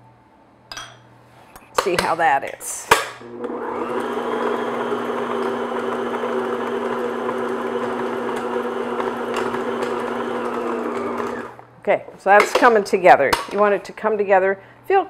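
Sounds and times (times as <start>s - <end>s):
electric stand mixer running: 3.2s - 11.6s.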